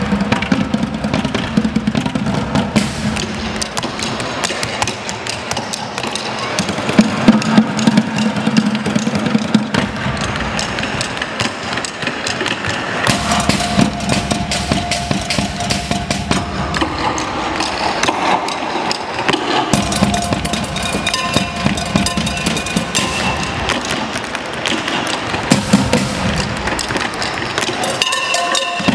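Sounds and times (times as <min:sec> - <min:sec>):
drum kit: 0:00.0 - 0:04.8, 0:13.0 - 0:18.6, 0:19.4 - 0:28.9
bucket drums: 0:00.0 - 0:28.9.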